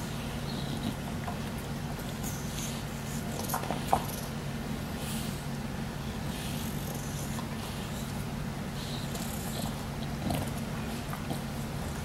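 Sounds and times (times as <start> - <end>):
steady low hum: 0.0 - 12.0
dog snuffly breaths: 4.9 - 12.0
dog chewing cloth: 9.1 - 12.0.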